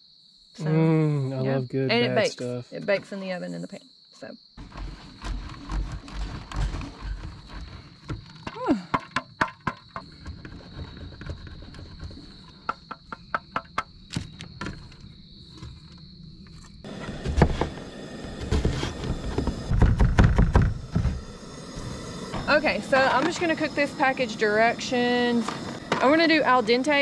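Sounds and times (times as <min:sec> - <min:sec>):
high insect drone: 0:00.0 - 0:27.0
loud knocks: 0:18.4 - 0:21.2.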